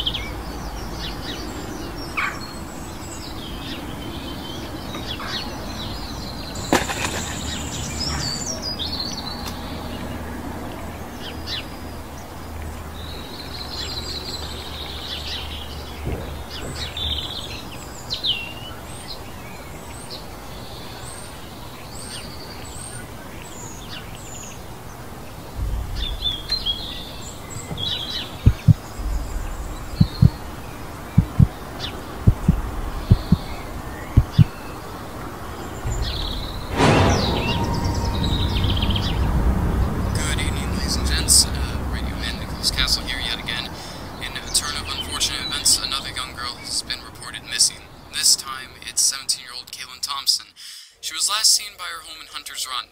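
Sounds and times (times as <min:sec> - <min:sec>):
birds chirping and calling: 0:00.0 - 0:52.8
short deep thumps: 0:16.0 - 0:17.4, 0:25.6 - 0:34.6, 0:35.8 - 0:43.3
low rumble: 0:23.8 - 0:44.5.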